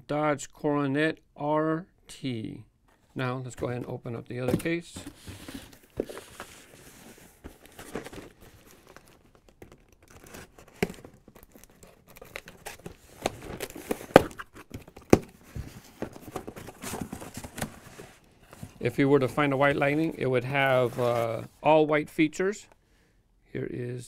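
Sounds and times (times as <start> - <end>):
cardboard flaps rustling and scraping: 3.6 - 21.5
packing tape tearing: 7.8 - 15.2
cardboard flaps cracking: 12.2 - 15.4.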